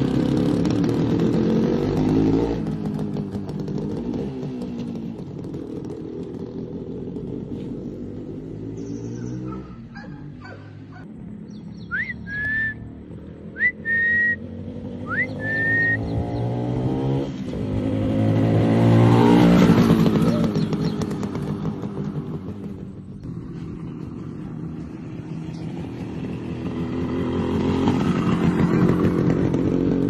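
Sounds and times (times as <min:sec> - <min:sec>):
motorcycle engine running: 0:00.0 - 0:30.0
loud upward sliding whistles: 0:11.7 - 0:12.9, 0:13.6 - 0:14.4, 0:15.0 - 0:16.5.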